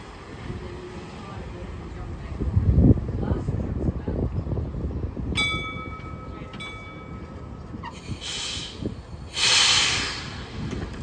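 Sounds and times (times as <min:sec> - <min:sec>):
tram rumbling on rails: 0:00.0 - 0:11.0
tram bell ringing: 0:05.3 - 0:07.9
air hissing: 0:07.9 - 0:10.9.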